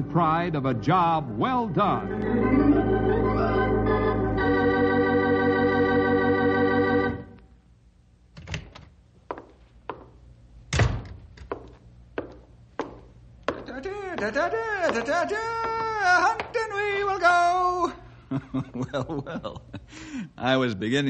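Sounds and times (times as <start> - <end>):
organ chord: 0.0 - 7.5.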